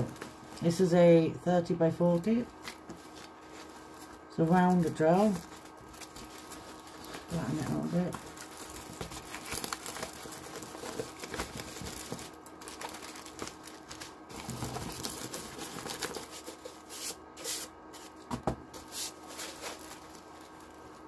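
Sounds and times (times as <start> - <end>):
canvas rustling and crinkling: 2.5 - 16.6, 18.8 - 21.0.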